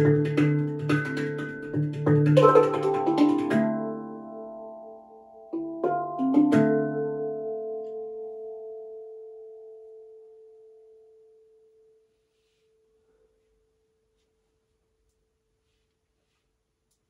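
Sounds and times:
handpan note ringing: 0.0s - 10.9s.

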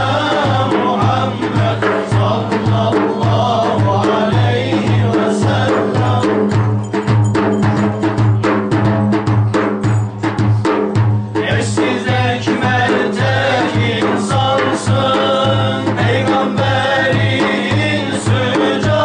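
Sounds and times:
men singing a hymn: 0.0s - 6.8s, 11.3s - 19.0s
frame drums beating: 0.0s - 19.0s.

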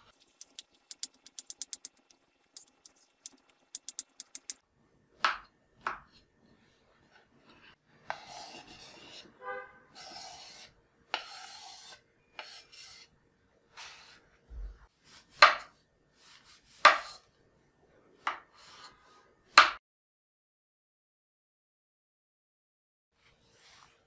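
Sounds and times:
scraping on wooden cutting board: 7.1s - 13.1s, 15.1s - 17.2s.

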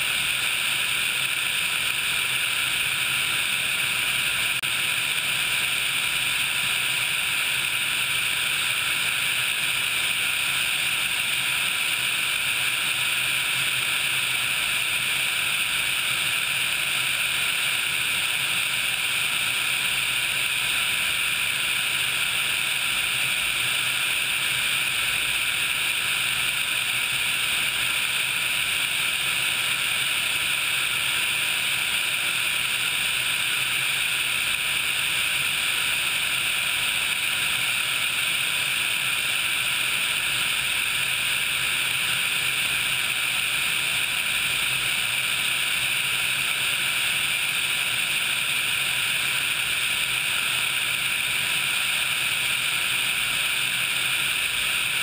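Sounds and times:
helicopter in flight: 0.0s - 55.0s.

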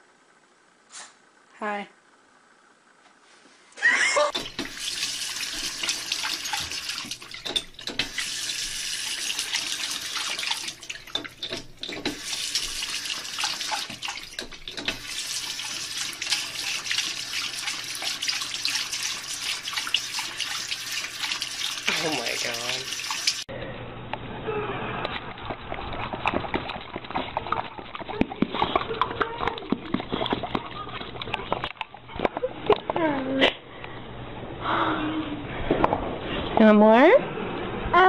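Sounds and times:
faucet running: 4.3s - 23.5s.

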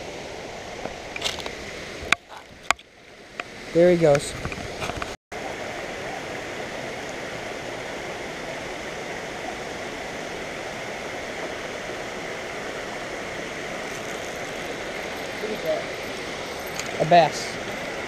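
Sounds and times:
water rushing over spillway: 5.4s - 18.0s.

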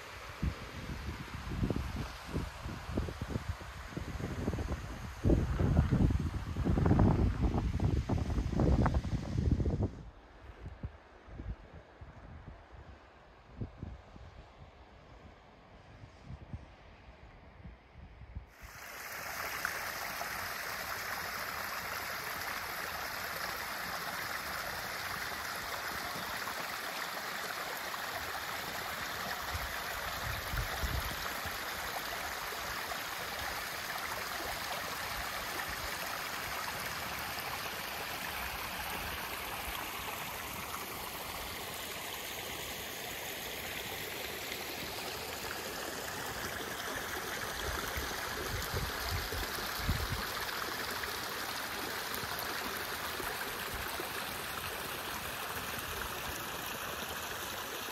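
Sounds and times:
stream gurgling over stones: 18.5s - 57.9s.

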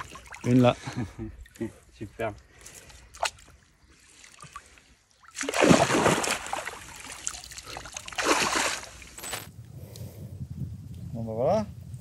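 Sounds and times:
water splashing and sloshing: 0.0s - 9.5s.

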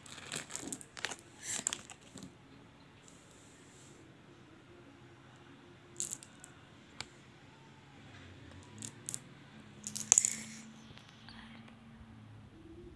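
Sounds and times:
candy balls clicking together: 6.0s - 6.5s, 8.5s - 9.2s, 9.8s - 11.1s.

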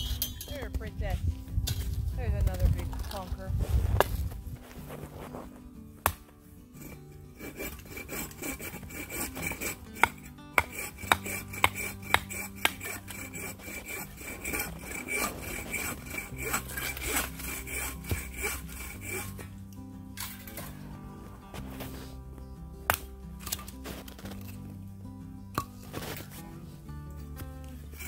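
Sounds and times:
soft background music: 0.0s - 28.0s
wood scraping: 0.5s - 24.8s, 25.6s - 28.0s
hatchet splitting wood: 6.0s - 19.5s, 22.8s - 24.8s.

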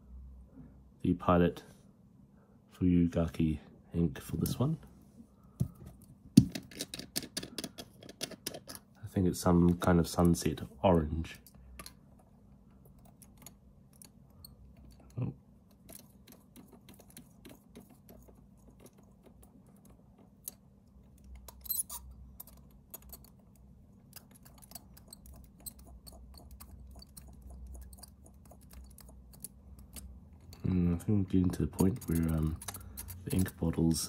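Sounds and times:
clicks of plastic pen parts: 6.4s - 8.9s.

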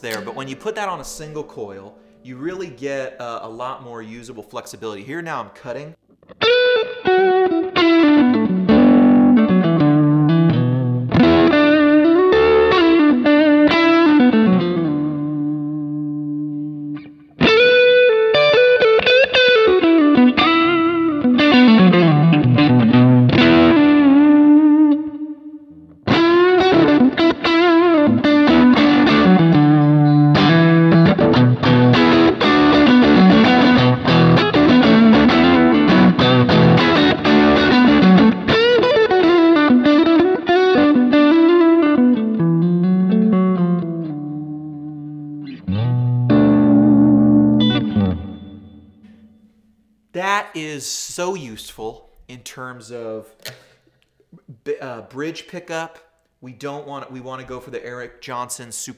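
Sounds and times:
distorted electric guitar lead: 6.2s - 49.5s.

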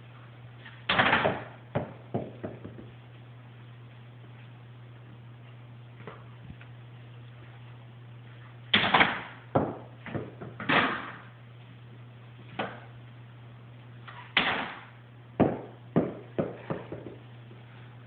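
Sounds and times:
ball bouncing on hard floor: 0.9s - 2.9s, 8.8s - 11.0s, 15.4s - 17.2s.

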